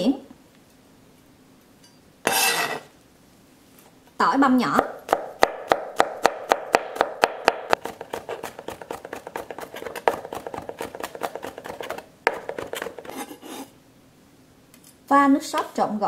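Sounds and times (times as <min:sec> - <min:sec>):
knife chopping on cutting board: 0:04.8 - 0:13.7.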